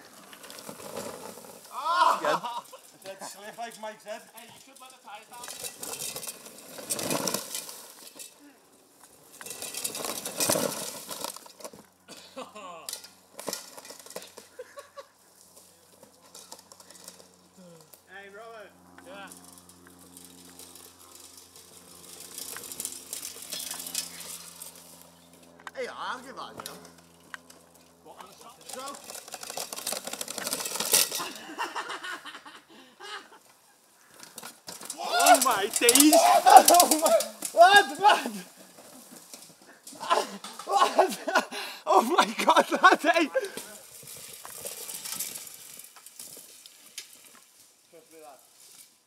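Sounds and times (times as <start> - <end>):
bike tyres skidding on dirt: 0.0 - 12.2, 12.9 - 18.0, 18.8 - 25.5, 26.6 - 32.2, 33.5 - 49.0
voices calling out: 1.7 - 5.9, 34.8 - 39.0
people laughing: 1.8 - 3.7, 14.5 - 15.2, 31.2 - 33.4, 40.0 - 43.7.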